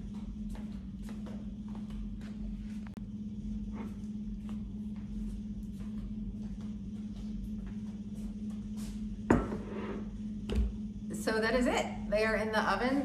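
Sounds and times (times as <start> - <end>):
faint footsteps on kitchen floor: 0.0 - 3.0, 3.6 - 10.7
steady low hum: 0.0 - 13.0.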